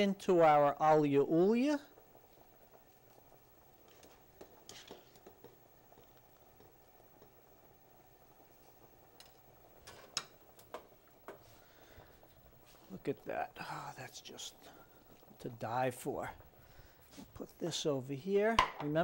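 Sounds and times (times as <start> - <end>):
utensil tapping pots: 4.0 - 7.4, 18.5 - 19.0.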